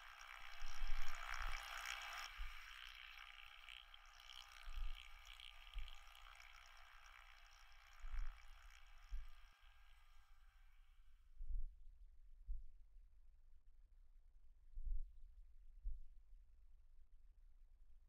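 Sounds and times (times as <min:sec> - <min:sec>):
soft hissing rush: 0:00.0 - 0:10.0.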